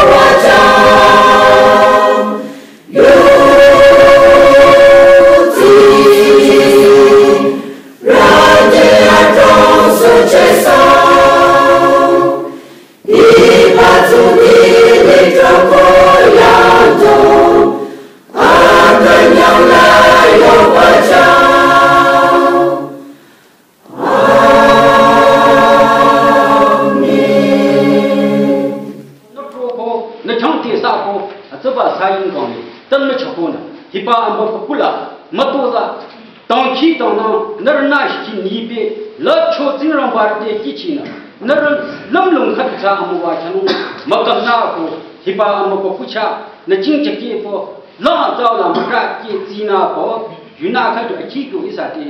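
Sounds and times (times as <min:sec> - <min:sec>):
women's choir singing unaccompanied: 0:00.0 - 0:29.2.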